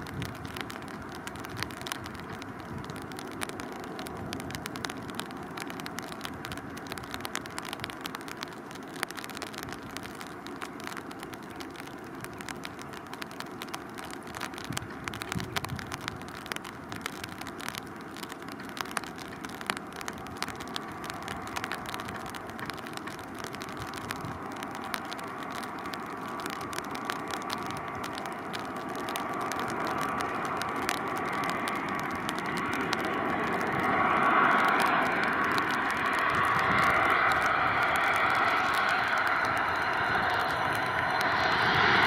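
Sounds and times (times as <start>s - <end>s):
distant jet hiss with crackles: 0.0s - 42.0s
faint jet engine whine: 23.8s - 42.0s.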